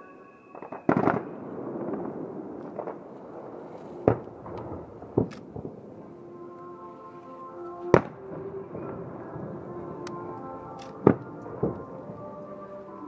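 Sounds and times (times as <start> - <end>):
fireworks crackling: 0.0 - 6.3
faint fireworks pops: 0.5 - 5.8
fireworks bangs: 0.5 - 6.1.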